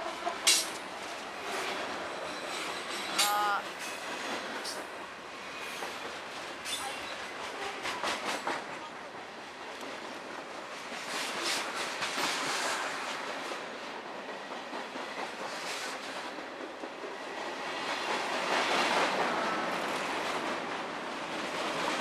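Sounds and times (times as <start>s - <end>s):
freight train wheels rumbling: 0.0s - 22.0s
wheel clacks over rail joints: 0.4s - 0.9s.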